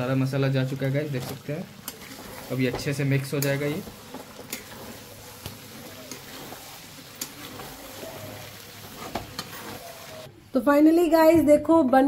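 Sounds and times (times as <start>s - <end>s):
food sizzling in a pan: 0.0s - 10.4s
utensil clicking on pan: 5.4s - 8.0s.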